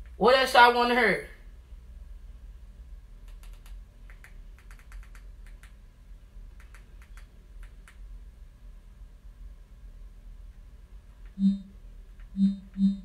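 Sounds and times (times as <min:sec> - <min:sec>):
fingers tapping on phone: 0:03.2 - 0:05.8, 0:06.6 - 0:08.0.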